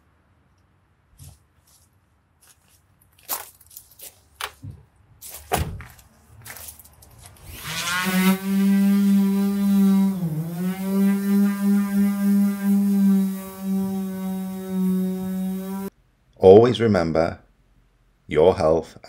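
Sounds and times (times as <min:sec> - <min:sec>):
orbital sander whining: 0:07.4 - 0:15.9.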